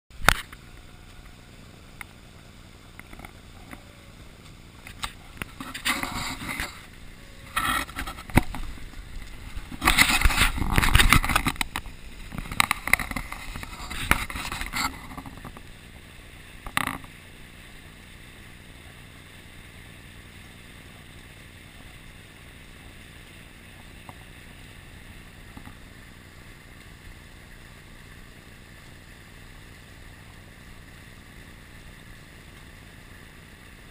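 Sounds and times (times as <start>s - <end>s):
rush of wind and water: 0.1s - 33.9s
knocks and scrapes near microphone: 4.9s - 15.7s, 16.7s - 17.1s.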